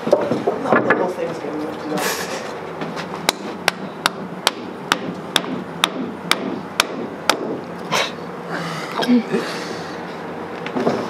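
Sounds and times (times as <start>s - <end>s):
mallet striking wooden block: 3.3s - 7.6s.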